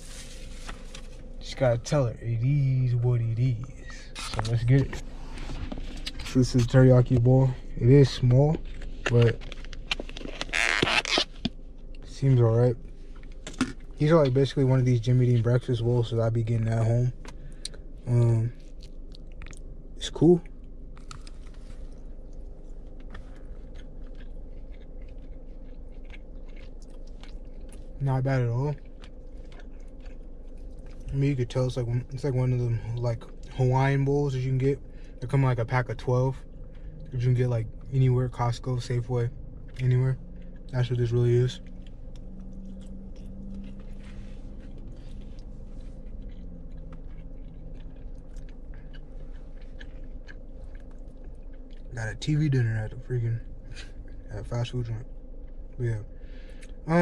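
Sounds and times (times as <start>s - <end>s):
steady low hum: 0.0s - 57.0s
person chewing food: 16.7s - 54.3s, 55.0s - 56.8s.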